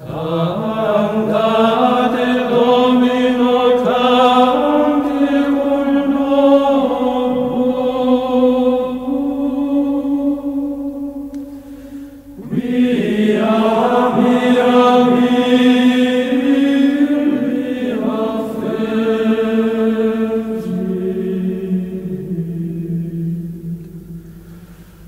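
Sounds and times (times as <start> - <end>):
voices chanting long notes: 0.0 - 25.0.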